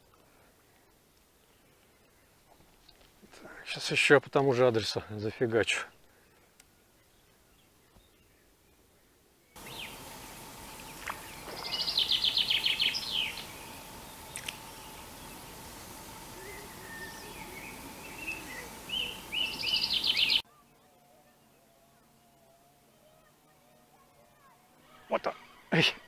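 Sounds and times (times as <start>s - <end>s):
background hiss: 0.0s - 26.0s
faint steady hum: 6.0s - 26.0s
bird chirps: 9.5s - 20.8s
songbird trilling: 9.6s - 20.4s.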